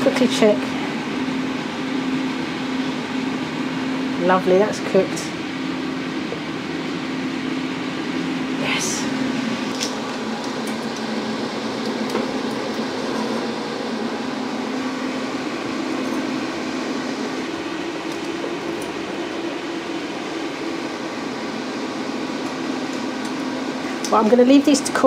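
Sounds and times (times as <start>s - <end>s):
air fryer fan whirring: 0.0s - 25.0s.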